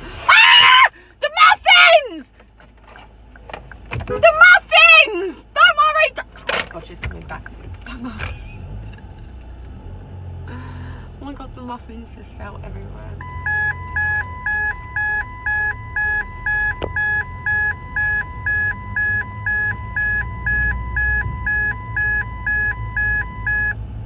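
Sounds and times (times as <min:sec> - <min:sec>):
car engine rumble: 0:00.0 - 0:24.0
car warning chime beeping: 0:13.0 - 0:23.9.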